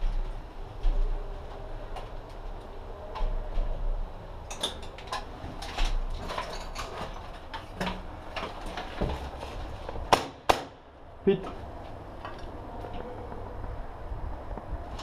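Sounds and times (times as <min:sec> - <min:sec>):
footsteps: 0:00.0 - 0:04.2
gear and rifle clicks and knocks: 0:04.5 - 0:10.1
low rumble: 0:10.8 - 0:15.0.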